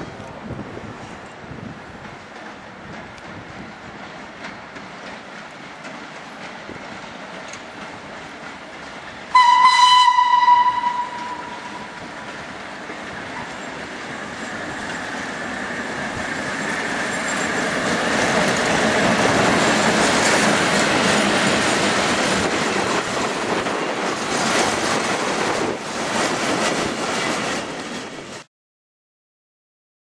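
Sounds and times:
train wheels clacking over rail joints: 0:01.0 - 0:28.5.

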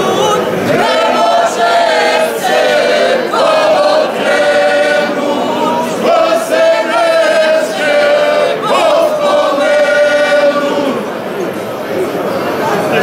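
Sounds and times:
group singing without instruments: 0:00.0 - 0:11.2.

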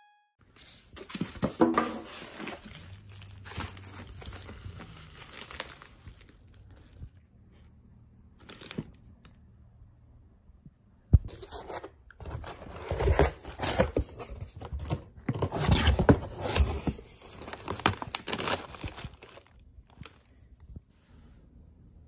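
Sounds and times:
plastic packaging crinkling: 0:00.5 - 0:07.2, 0:08.4 - 0:09.3, 0:11.4 - 0:20.4.

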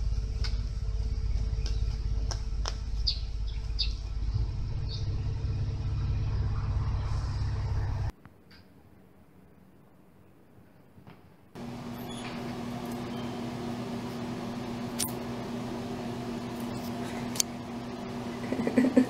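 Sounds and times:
steady low rumble: 0:00.0 - 0:08.1, 0:11.6 - 0:19.0
mouse squeaking: 0:11.9 - 0:13.4.

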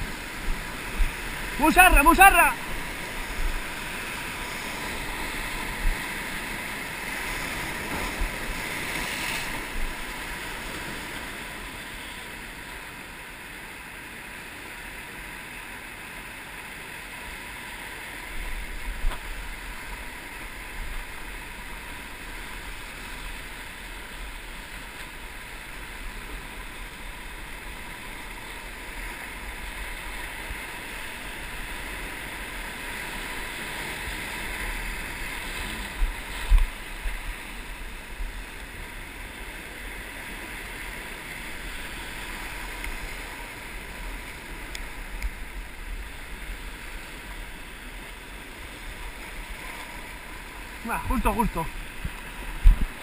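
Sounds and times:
surf breaking over rocks: 0:00.0 - 0:12.7
wind rumbling on microphone: 0:51.7 - 0:53.0.

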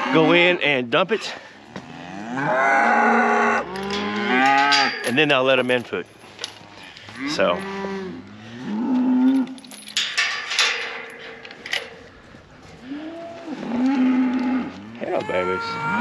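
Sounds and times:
cattle mooing: 0:00.0 - 0:00.6, 0:01.7 - 0:05.0, 0:06.6 - 0:09.6, 0:12.8 - 0:16.0.

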